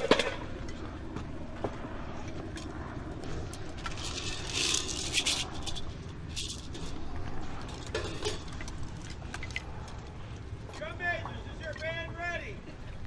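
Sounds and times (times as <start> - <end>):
percussion gear rattling and scraping: 2.2 - 12.2.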